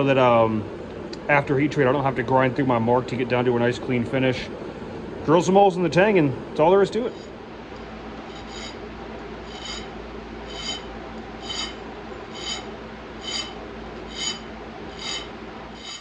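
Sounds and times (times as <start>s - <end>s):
shop fan rushing: 0.0s - 16.0s
file rasping on steel: 7.1s - 7.3s, 8.3s - 8.8s, 9.5s - 9.9s, 10.5s - 16.0s.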